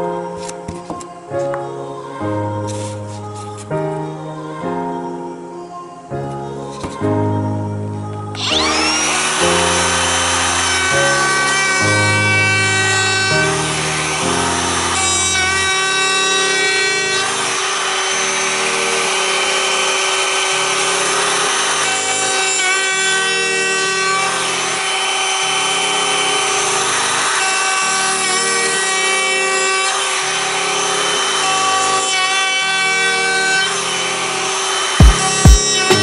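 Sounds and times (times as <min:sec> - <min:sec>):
router whining: 0:08.1 - 0:36.0
router bit cutting wood: 0:08.2 - 0:36.0.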